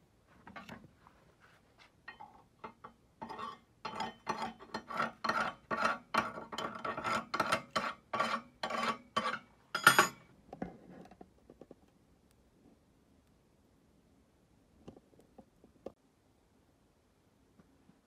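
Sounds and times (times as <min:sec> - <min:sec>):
hand tool scraping weld slag: 0:02.1 - 0:10.2.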